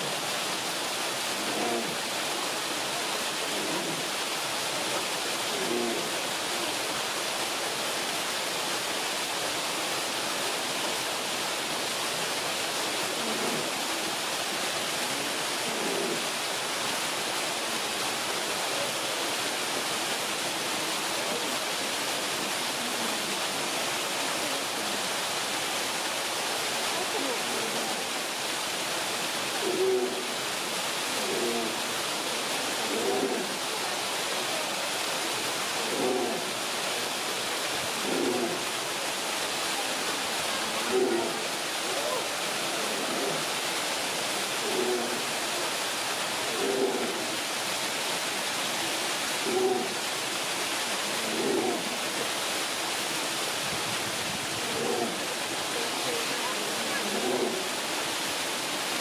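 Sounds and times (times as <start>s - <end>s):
running water hissing: 0.0s - 59.0s
faint human voices: 26.7s - 28.3s, 37.9s - 43.6s, 54.0s - 57.8s.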